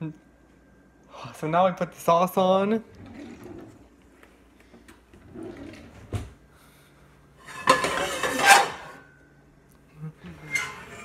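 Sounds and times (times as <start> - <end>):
cookware clattering and clinking: 7.5 - 9.0.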